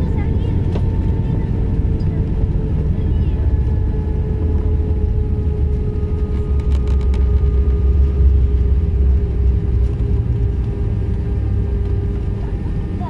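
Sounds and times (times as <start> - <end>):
airplane cabin rumble: 0.0 - 13.0.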